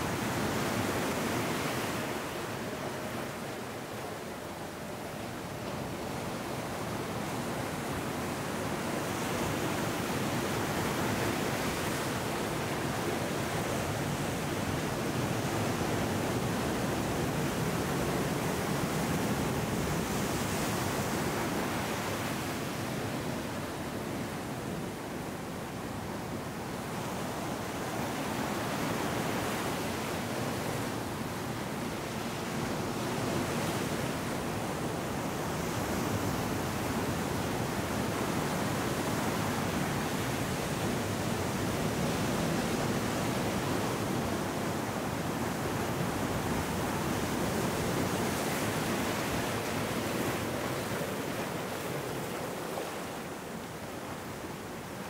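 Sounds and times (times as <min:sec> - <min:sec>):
ocean waves breaking: 0:41.1 - 0:55.0.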